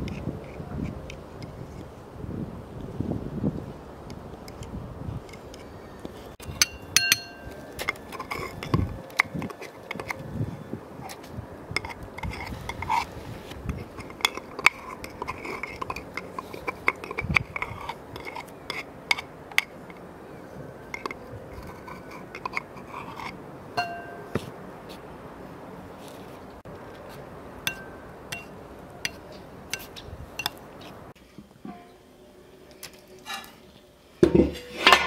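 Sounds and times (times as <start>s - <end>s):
spoon and knife clinking and scraping: 6.4s - 10.2s, 20.9s - 24.4s, 27.7s - 30.6s.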